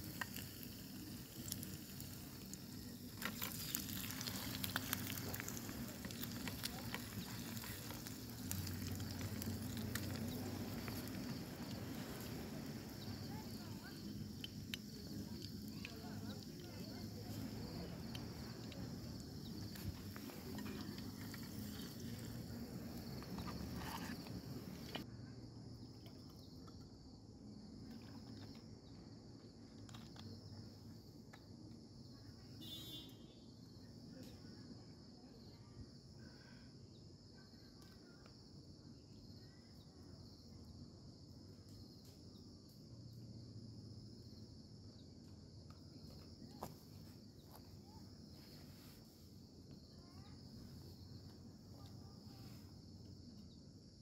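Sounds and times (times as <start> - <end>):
egg sizzling in a pan: 0.0 - 25.0
crickets chirring: 0.0 - 54.0.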